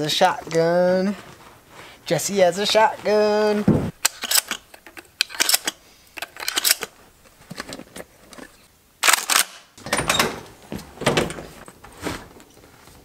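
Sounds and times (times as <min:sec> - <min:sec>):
clunks and rummaging: 0:02.7 - 0:08.7, 0:09.8 - 0:13.0
truck door opening: 0:09.8 - 0:11.8.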